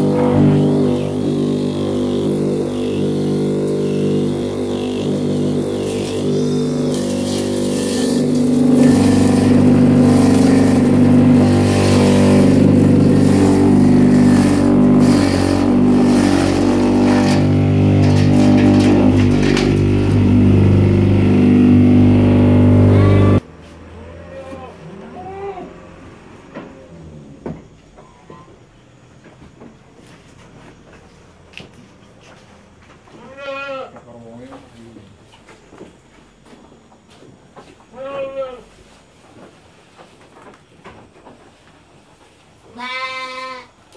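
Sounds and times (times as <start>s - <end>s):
blades chopping leafy greens: 0.0s - 21.0s
electric motor humming: 0.0s - 23.4s.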